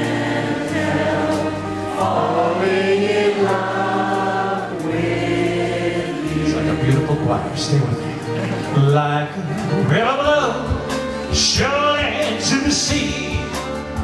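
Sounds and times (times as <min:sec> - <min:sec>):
choir-like backing vocals: 0:00.0 - 0:09.9
live band playing a slow ballad: 0:00.0 - 0:14.0.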